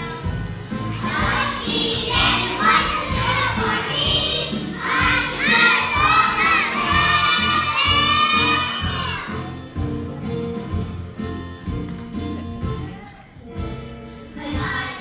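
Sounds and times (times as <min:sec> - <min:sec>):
children singing loudly: 0:00.0 - 0:09.7
backing music track: 0:00.0 - 0:15.0.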